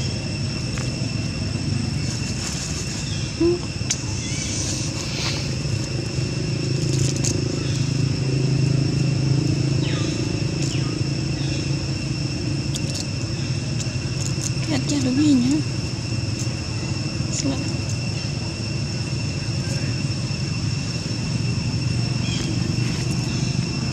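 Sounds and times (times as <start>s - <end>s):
continuous high whine: 0.0s - 23.9s
low hum: 0.0s - 23.9s
dry leaves crackling: 0.6s - 23.9s.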